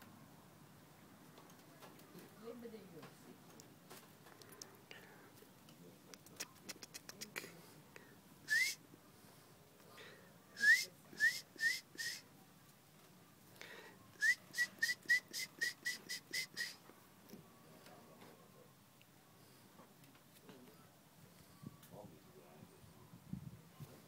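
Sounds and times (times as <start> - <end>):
person making whistle-like chirps: 8.5 - 8.8, 10.6 - 12.2, 14.2 - 16.8.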